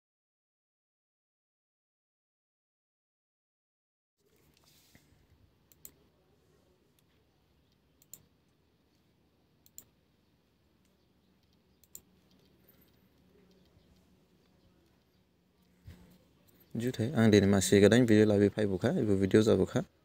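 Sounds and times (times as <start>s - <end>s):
low steady hum: 4.3s - 20.0s
computer mouse clicks: 5.7s - 6.1s, 6.9s - 9.0s, 9.6s - 10.0s, 10.8s - 16.8s.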